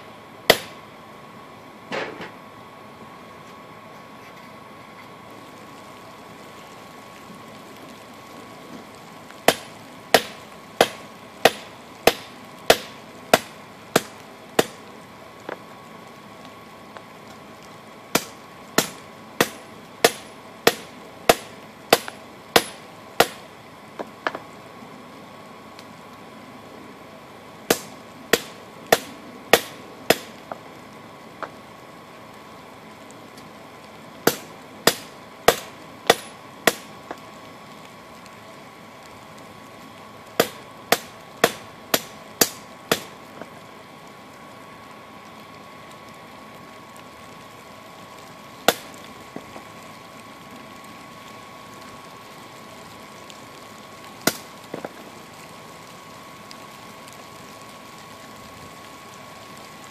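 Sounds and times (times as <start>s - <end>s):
hammer striking hot steel: 0.5s - 0.8s, 9.5s - 14.8s, 18.1s - 23.4s, 27.7s - 30.6s, 34.2s - 37.2s, 40.4s - 43.2s.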